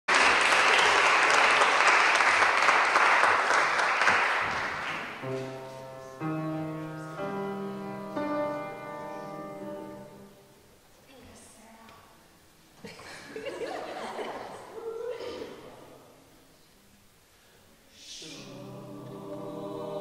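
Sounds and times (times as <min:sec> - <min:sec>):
audience applause: 0:00.1 - 0:05.2.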